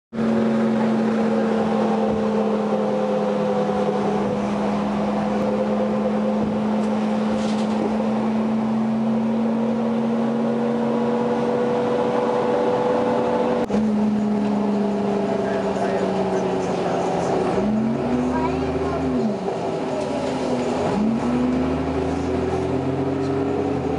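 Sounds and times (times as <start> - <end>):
bus engine drone and whine: 0.1 - 23.9
road noise: 0.1 - 23.9.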